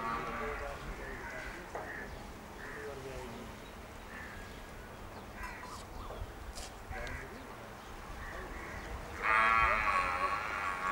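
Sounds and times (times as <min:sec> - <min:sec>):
outdoor background noise: 0:00.0 - 0:10.9
short bird calls: 0:04.0 - 0:06.3.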